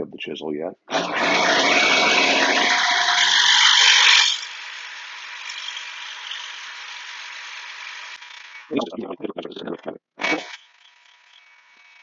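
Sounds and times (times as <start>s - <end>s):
chisel grinding on a wheel: 1.0s - 8.7s, 10.2s - 12.0s.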